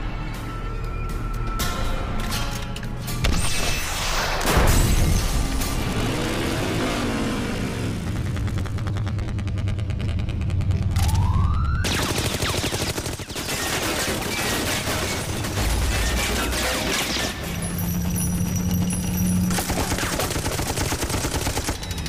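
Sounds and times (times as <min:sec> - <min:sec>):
low rumble: 0:05.2 - 0:11.9
rapid machine-gun fire: 0:11.8 - 0:17.4, 0:19.5 - 0:22.0.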